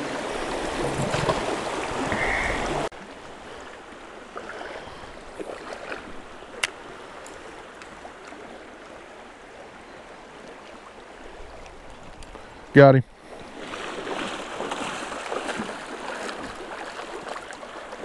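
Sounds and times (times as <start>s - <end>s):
small splashes: 0.0s - 3.0s, 4.4s - 8.4s, 13.3s - 18.0s
creek water running over rocks: 0.0s - 18.0s.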